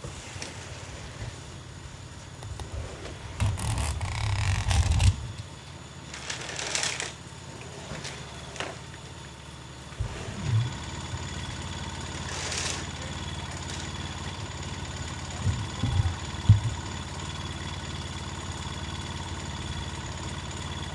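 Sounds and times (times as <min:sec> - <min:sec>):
pickup truck engine idling: 0:00.0 - 0:20.9
low thumps: 0:15.4 - 0:17.0.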